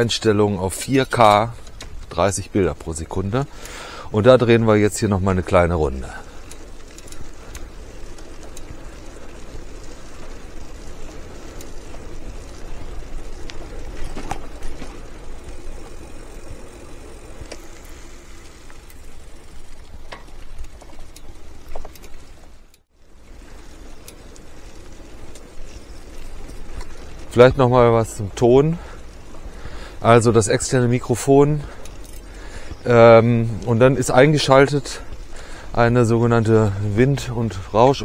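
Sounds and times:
tyres rolling on paved path: 0:00.0 - 0:38.0
wind: 0:00.0 - 0:38.0
small clicks and rattles: 0:05.9 - 0:28.2, 0:28.8 - 0:36.1.

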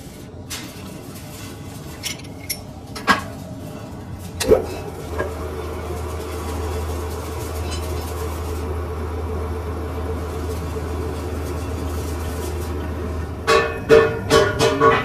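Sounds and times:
lathe running: 0:04.4 - 0:14.0.

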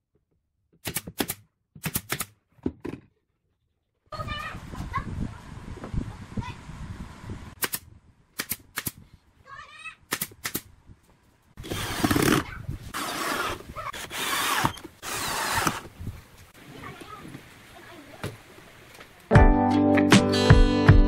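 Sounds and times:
cordless drill boring into wood: 0:11.6 - 0:15.9.

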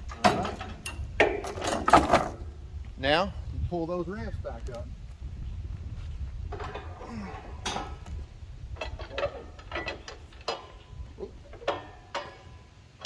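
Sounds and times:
metal ramps clanking and rattling: 0:00.0 - 0:02.5, 0:06.4 - 0:13.0.

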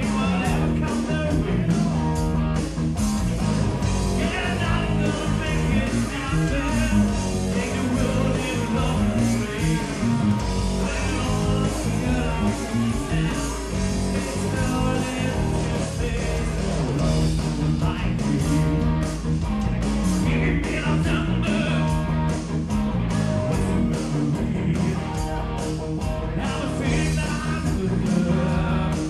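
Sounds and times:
man singing: 0:00.0 - 0:02.1, 0:04.1 - 0:10.2, 0:10.8 - 0:18.9, 0:20.2 - 0:22.0, 0:23.6 - 0:25.3, 0:26.2 - 0:29.0
rock band playing live: 0:00.0 - 0:29.0.

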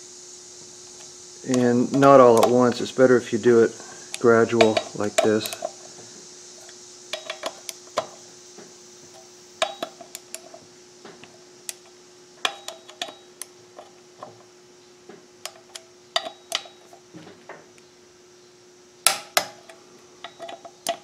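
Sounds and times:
socket clinking on bolts: 0:04.6 - 0:05.8, 0:12.4 - 0:13.2, 0:15.4 - 0:16.8.

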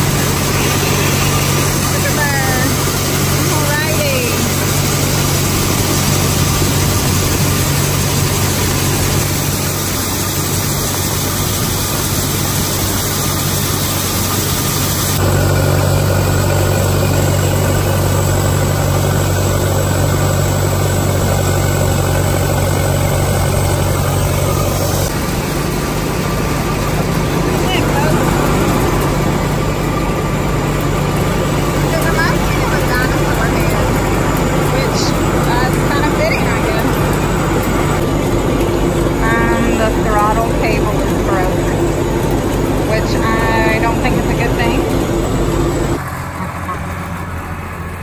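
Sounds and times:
corn pouring into a wagon: 0:00.0 - 0:37.2
combine harvester drone: 0:00.0 - 0:48.0.

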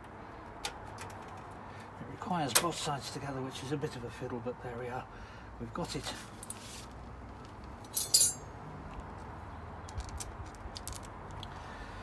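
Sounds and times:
small metal parts clinking: 0:07.8 - 0:08.5, 0:09.9 - 0:11.4.

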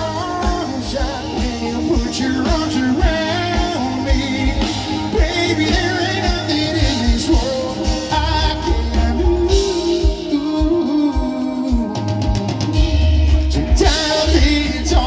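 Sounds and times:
person singing: 0:00.0 - 0:15.0
pop-rock band playing: 0:00.0 - 0:15.0.

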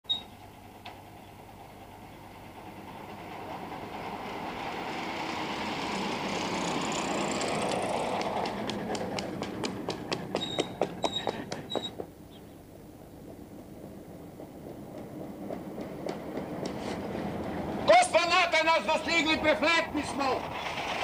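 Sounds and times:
bus driving past: 0:00.1 - 0:21.0
footsteps running on road: 0:07.9 - 0:12.2.

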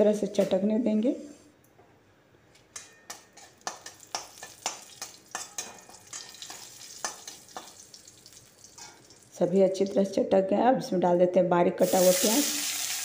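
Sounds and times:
spatula stirring and scraping: 0:02.8 - 0:07.8
spices sizzling in hot oil: 0:03.1 - 0:09.4, 0:11.8 - 0:13.0.

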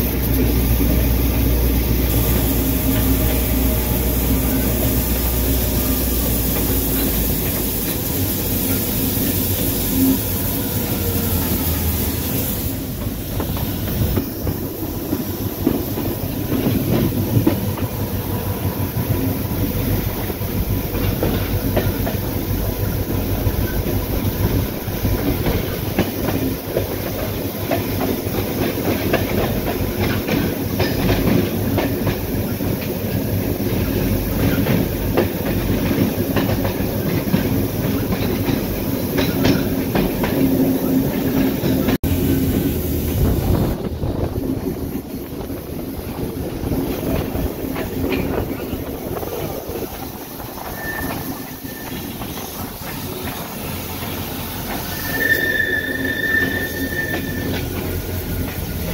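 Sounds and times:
high hiss: 0:00.0 - 0:58.9
wheels clicking over rail joints: 0:12.9 - 0:42.0, 0:43.4 - 0:58.9.

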